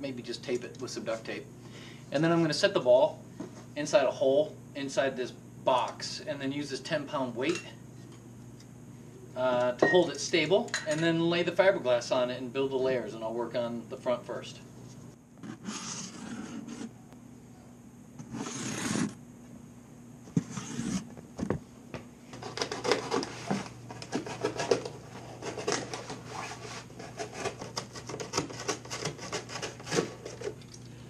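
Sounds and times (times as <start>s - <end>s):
cardboard box scraping: 15.4s - 16.9s, 18.3s - 19.2s, 20.4s - 21.1s.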